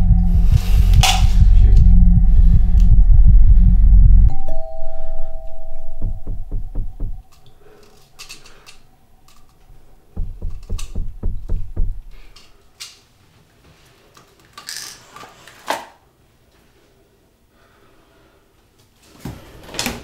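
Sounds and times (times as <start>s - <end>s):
heavy pounding on door: 6.0s - 7.3s, 10.1s - 12.3s.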